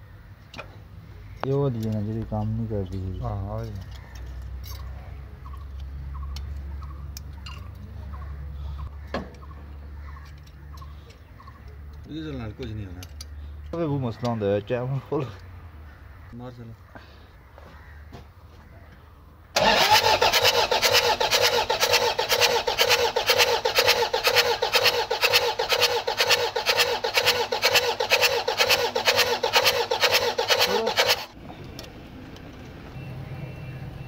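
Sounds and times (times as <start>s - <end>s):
diesel engine cranking on starter: 19.6s - 31.9s.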